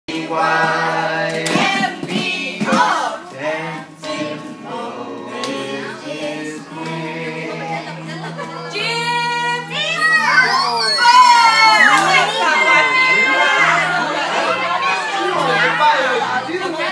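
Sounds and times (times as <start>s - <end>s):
adults singing children's song: 0.1s - 10.1s.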